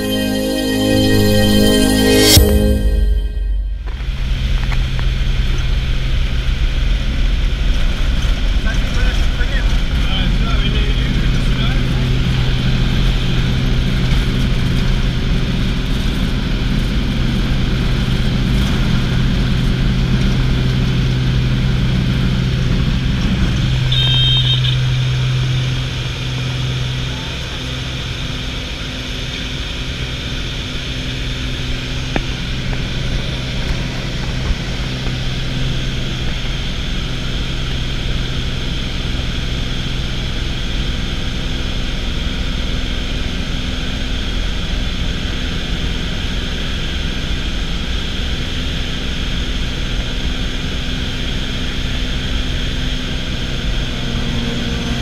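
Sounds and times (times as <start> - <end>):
short high beep: 0.0 - 4.2
propeller plane engine running: 3.8 - 55.0.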